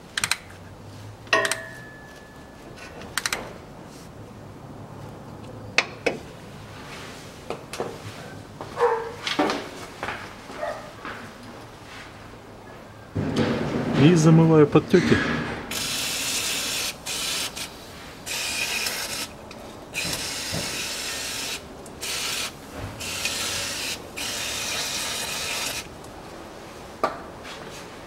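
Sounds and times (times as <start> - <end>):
spray can hissing: 15.7 - 17.7, 18.3 - 19.3, 20.0 - 25.9.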